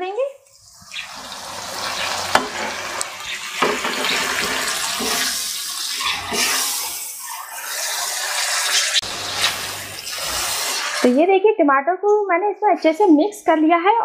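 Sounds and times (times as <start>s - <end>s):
spatula stirring and scraping: 0.6s - 11.1s
meat sizzling in a wok: 0.7s - 11.1s.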